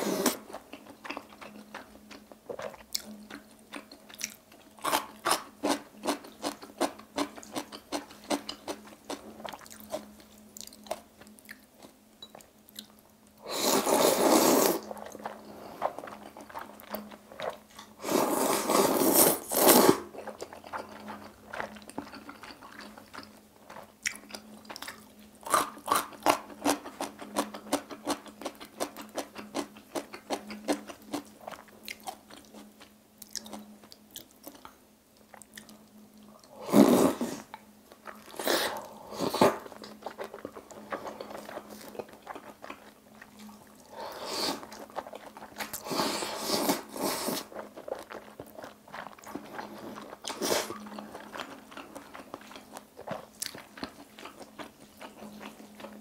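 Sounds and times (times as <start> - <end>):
loud noodle slurps: 0.0 - 0.4, 13.5 - 14.9, 18.0 - 20.1, 36.6 - 37.5, 38.3 - 39.7, 44.0 - 44.7, 45.8 - 47.5, 49.8 - 50.8
crunchy chewing: 36.9 - 56.0.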